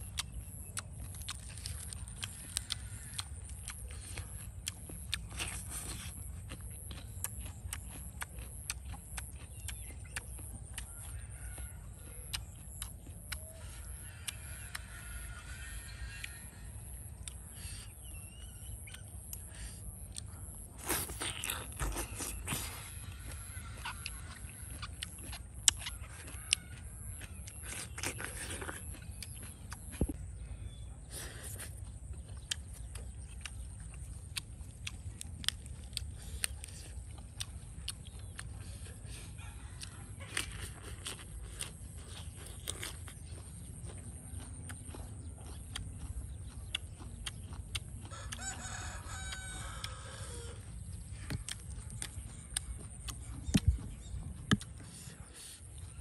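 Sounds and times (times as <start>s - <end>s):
person chewing and crunching food: 0.0s - 56.0s
rooster crowing: 10.8s - 12.4s, 13.6s - 17.1s, 25.9s - 27.8s, 48.0s - 50.7s.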